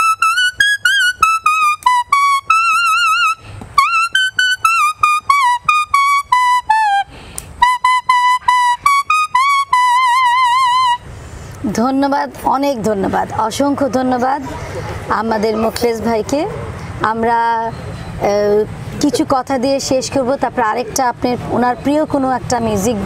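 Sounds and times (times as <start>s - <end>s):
leaf whistle playing folk melody: 0.0s - 11.4s.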